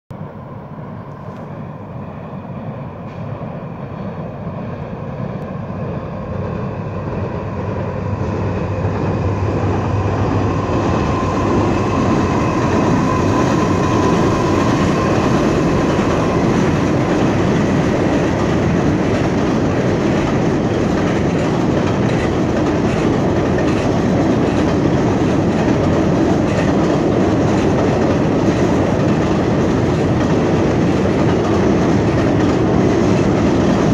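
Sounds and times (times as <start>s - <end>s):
diesel locomotives passing: 0.1s - 33.9s
train wheels clattering on bridge: 6.8s - 33.9s.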